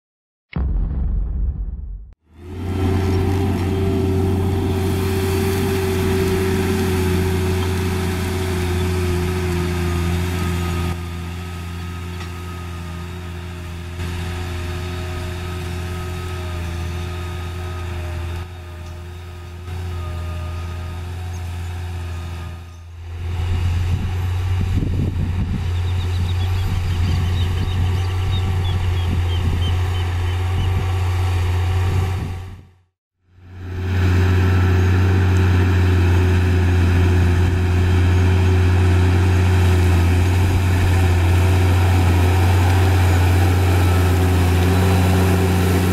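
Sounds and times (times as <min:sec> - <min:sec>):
tractor diesel engine under load: 0:02.3 - 0:32.8, 0:33.4 - 0:45.9.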